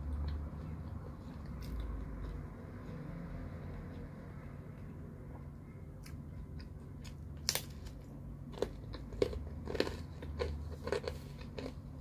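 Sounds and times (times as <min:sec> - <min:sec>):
crunchy crust chewing: 0:06.0 - 0:12.0.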